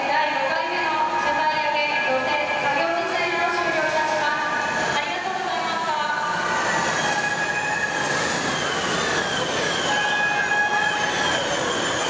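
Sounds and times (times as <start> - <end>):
crane motor whine: 3.4 - 12.0.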